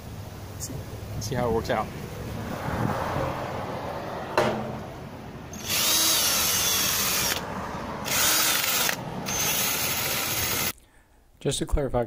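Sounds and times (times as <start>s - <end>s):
drill spinning wire brush on metal: 5.5s - 10.7s.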